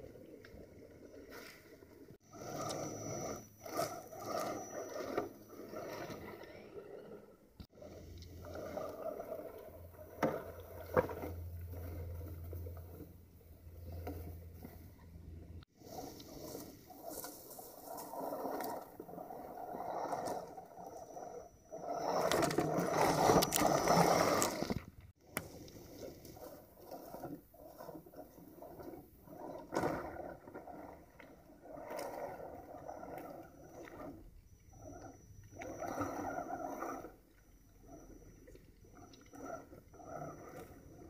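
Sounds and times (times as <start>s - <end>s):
faint high drivetrain whine: 2.2s - 41.0s
tires crunching through leaves: 15.8s - 24.9s.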